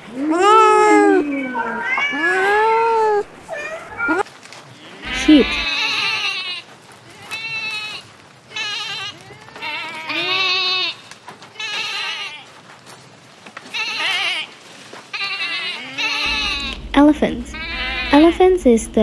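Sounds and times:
sheep bleating: 0:05.0 - 0:12.5, 0:15.2 - 0:18.4.

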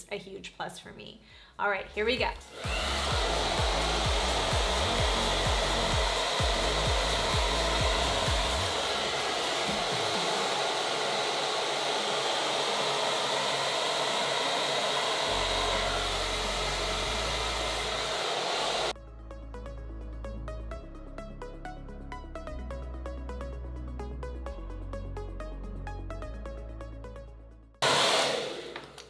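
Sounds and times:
hair dryer running: 0:02.4 - 0:19.0, 0:27.8 - 0:29.0.

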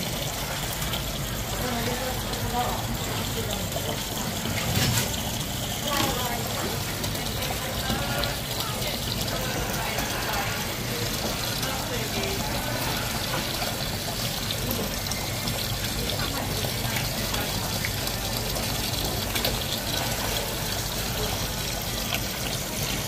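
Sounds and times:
running water: 0:00.0 - 0:23.0.

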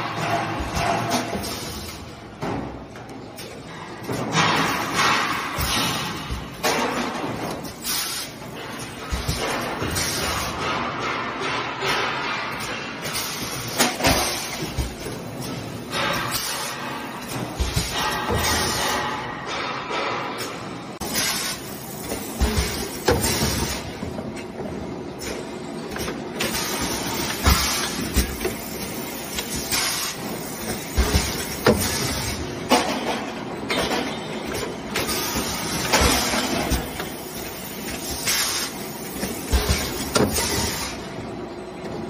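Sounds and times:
machine clunks and knocks: 0:00.0 - 0:07.8, 0:08.4 - 0:21.3, 0:22.0 - 0:40.9.

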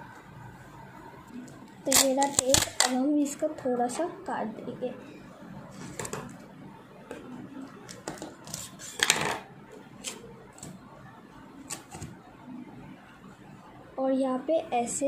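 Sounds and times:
scissors cutting tape: 0:01.9 - 0:03.0
sticky tape being pulled: 0:01.9 - 0:03.0.

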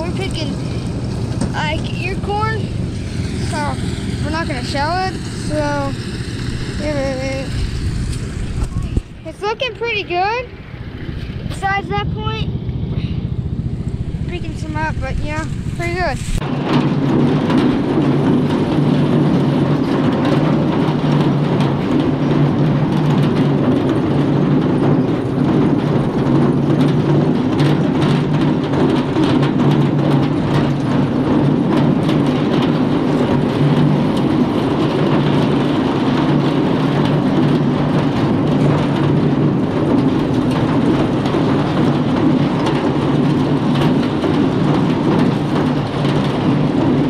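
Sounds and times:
elevator drive hum: 0:00.0 - 0:47.0.

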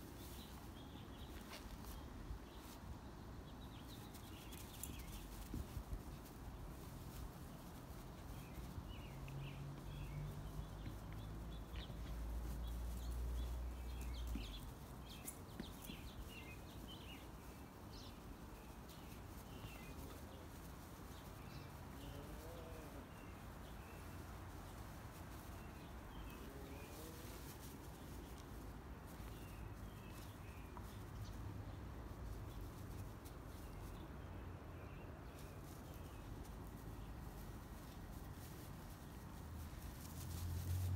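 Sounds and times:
birds chirping: 0:00.2 - 0:31.8.

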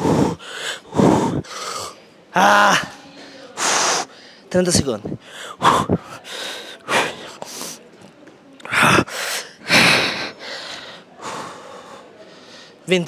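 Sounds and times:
man breathing hard: 0:00.0 - 0:02.0, 0:02.7 - 0:04.5, 0:05.1 - 0:07.8, 0:08.6 - 0:12.8.

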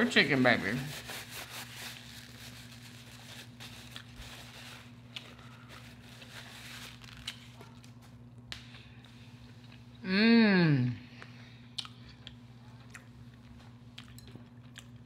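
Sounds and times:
paper napkin rustling: 0:00.0 - 0:08.2
steady low hum: 0:00.0 - 0:15.0.

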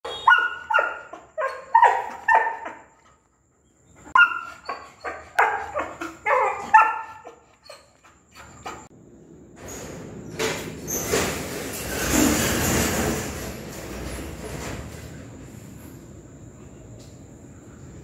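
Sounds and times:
dog barking: 0:00.1 - 0:02.9, 0:04.2 - 0:07.4.

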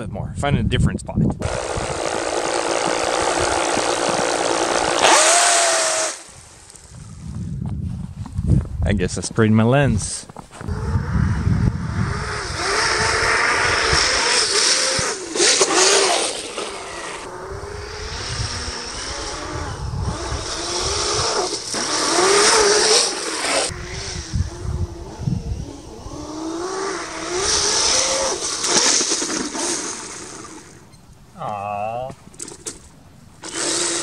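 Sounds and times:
electric motor whining: 0:01.4 - 0:06.3, 0:10.6 - 0:30.9, 0:33.4 - 0:34.0.

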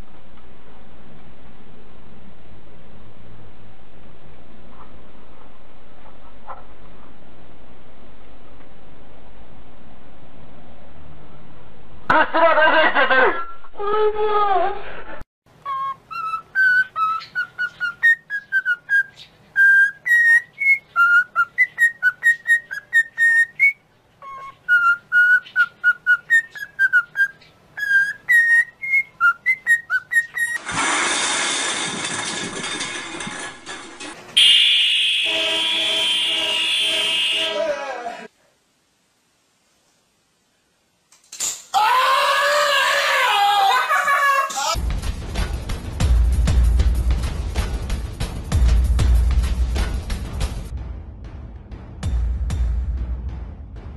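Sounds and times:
cockatiel whistling a tune: 0:15.6 - 0:30.6
loud burst of noise: 0:30.6 - 0:34.0
alarm buzzer: 0:34.4 - 0:37.7.

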